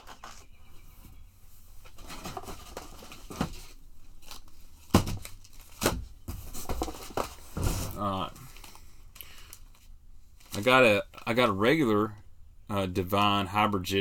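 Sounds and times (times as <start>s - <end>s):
plastic packaging crinkling: 2.0s - 6.0s.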